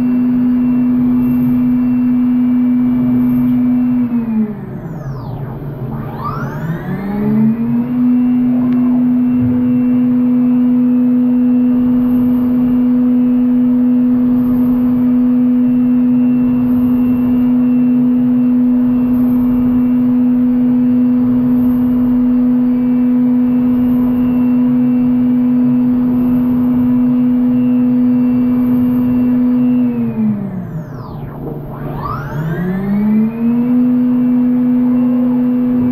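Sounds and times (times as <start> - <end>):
machine spindle running high pitch: 0.0 - 35.9.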